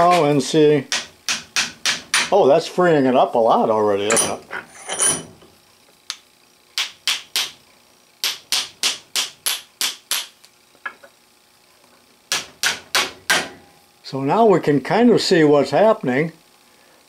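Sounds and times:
hammer tapping on metal: 0.9s - 2.3s, 6.8s - 7.6s, 8.2s - 10.3s, 12.3s - 13.6s.

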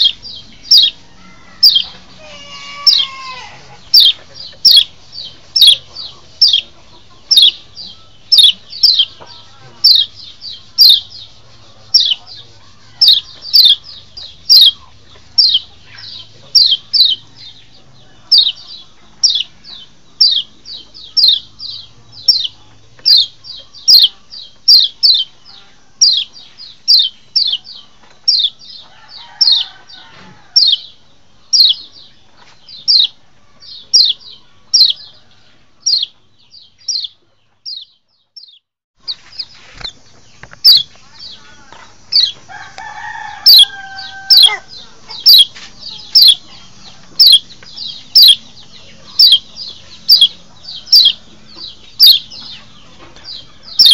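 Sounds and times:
bird chirping high downward slides: 0.0s - 11.2s.

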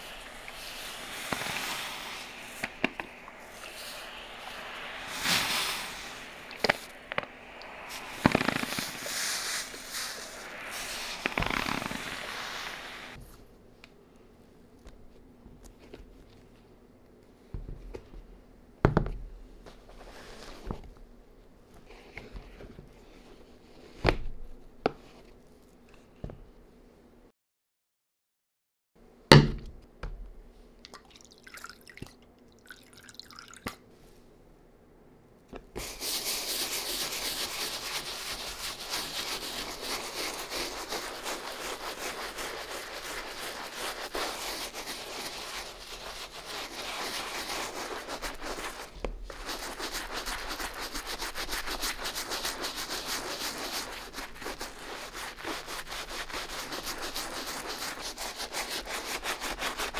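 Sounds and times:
brush scrubbing a sneaker: 0.0s - 13.2s, 35.8s - 59.9s.

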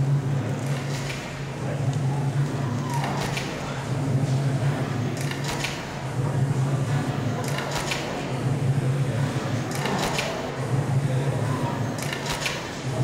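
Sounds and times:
low electronic drone: 0.0s - 12.1s
sharp clicks and clatters: 4.7s - 6.0s, 6.9s - 8.3s, 9.6s - 10.6s, 11.9s - 12.8s.

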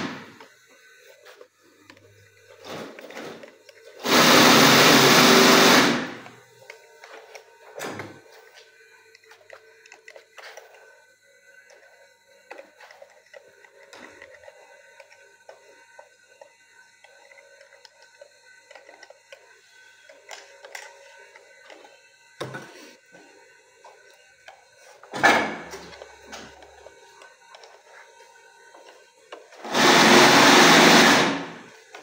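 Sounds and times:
faint clicks of handling parts: 6.2s - 10.9s, 11.6s - 23.0s, 25.7s - 29.6s.

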